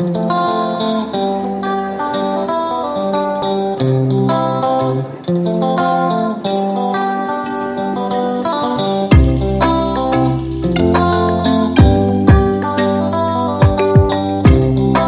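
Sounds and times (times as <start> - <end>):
plucked guitar melody: 0.0 - 15.0.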